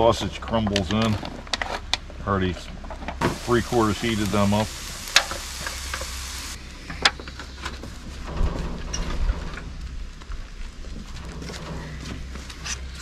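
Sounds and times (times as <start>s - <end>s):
gravy simmering with flame hiss: 3.2s - 6.6s.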